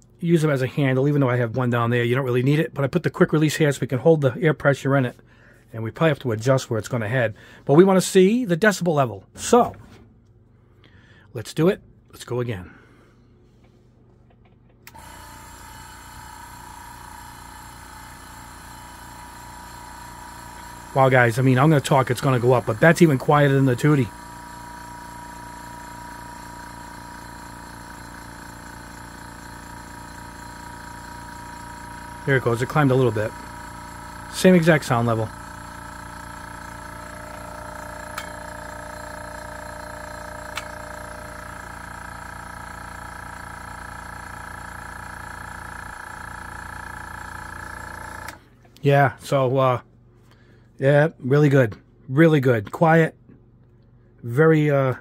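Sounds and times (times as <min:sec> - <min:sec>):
airbrush compressor humming: 0:14.9 - 0:48.5.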